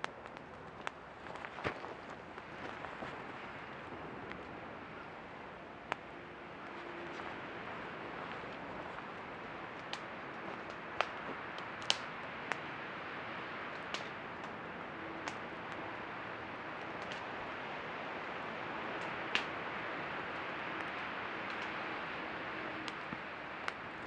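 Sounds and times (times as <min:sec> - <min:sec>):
campfire crackling: 0:00.0 - 0:24.0
fire popping: 0:00.0 - 0:24.0
steady hiss: 0:00.0 - 0:24.0.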